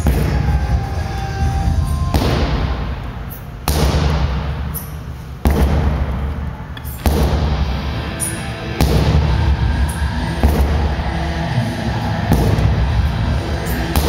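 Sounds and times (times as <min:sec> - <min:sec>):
sledgehammer striking rubber tire: 0:02.1 - 0:07.9, 0:08.8 - 0:09.5, 0:10.4 - 0:11.1, 0:12.2 - 0:13.0, 0:13.7 - 0:14.0.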